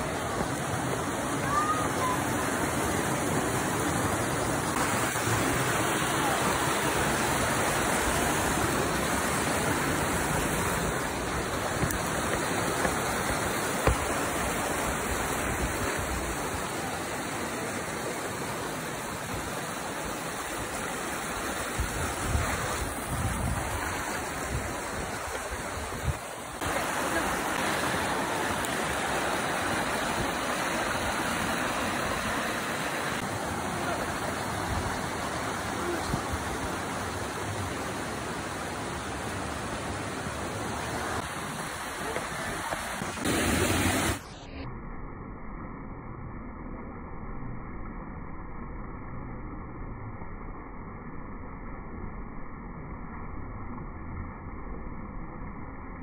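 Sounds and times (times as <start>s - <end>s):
creek rushing over stones: 0.0s - 44.3s.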